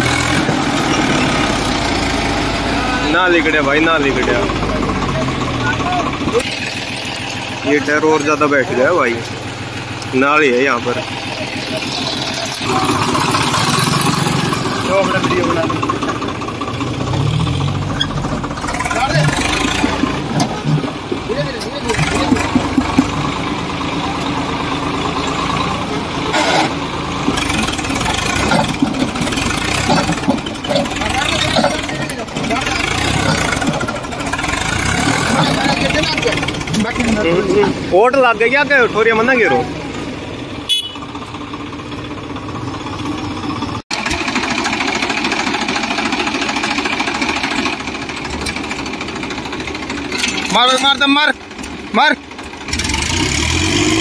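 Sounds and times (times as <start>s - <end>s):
tractor diesel engine running: 0.0s - 54.0s
loud scraping noise: 26.3s - 36.6s.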